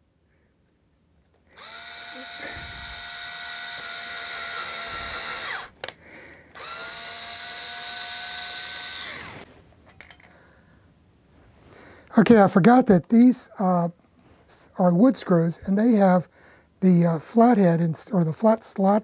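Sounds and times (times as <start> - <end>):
cordless drill motor whine: 1.5 - 5.8, 6.5 - 9.5.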